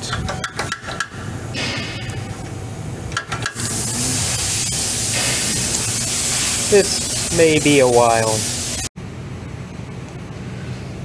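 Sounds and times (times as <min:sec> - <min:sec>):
spray hissing: 0:03.6 - 0:08.9.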